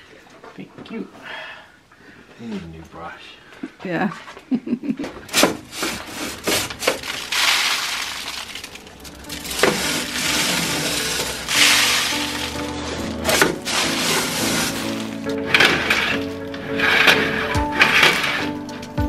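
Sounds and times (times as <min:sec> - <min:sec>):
wire brush scraping inside metal pipe: 0:05.3 - 0:18.6
background music: 0:07.2 - 0:19.0.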